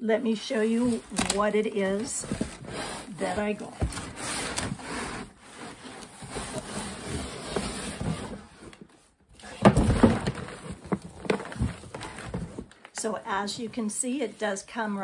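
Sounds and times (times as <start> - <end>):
cardboard scraping and rubbing: 0.5 - 12.8
boxes knocking: 9.5 - 12.7.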